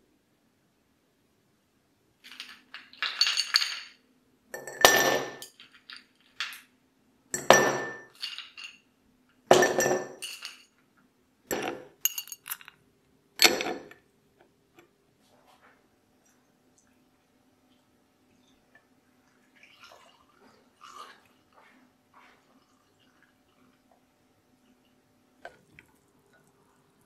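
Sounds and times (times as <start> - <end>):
ice cubes clinking in glass: 2.2 - 4.0, 4.6 - 6.7, 7.4 - 8.9, 9.5 - 10.8, 11.5 - 12.8.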